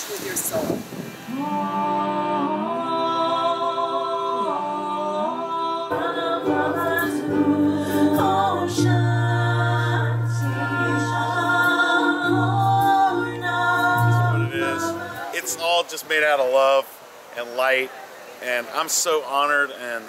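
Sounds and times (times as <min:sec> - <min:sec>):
person singing long notes: 0:01.3 - 0:15.8
strummed acoustic instrument: 0:05.9 - 0:15.8.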